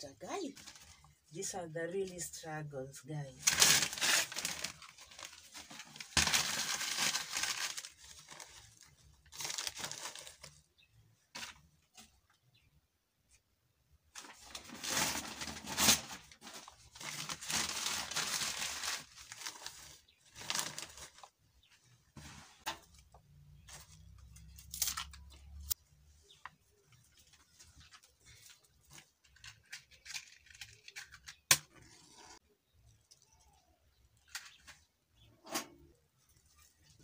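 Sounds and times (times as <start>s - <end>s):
paper crumpling and rustling: 3.4s - 10.6s, 14.2s - 21.4s, 26.6s - 31.5s.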